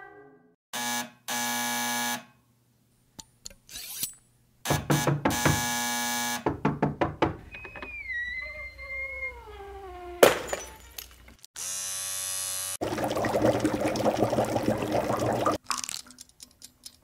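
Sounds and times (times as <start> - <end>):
wavering falling cry-like tone: 7.8 - 10.2.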